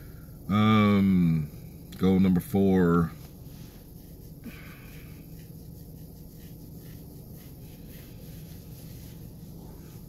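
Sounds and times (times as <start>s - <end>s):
low steady hum: 0.0s - 10.0s
short scratching strokes: 2.9s - 10.0s.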